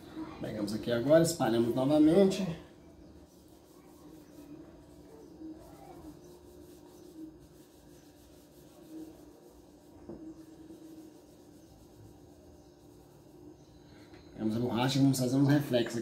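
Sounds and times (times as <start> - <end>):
faint hum: 0.0 - 16.0
hand rubbing paper: 3.0 - 14.6.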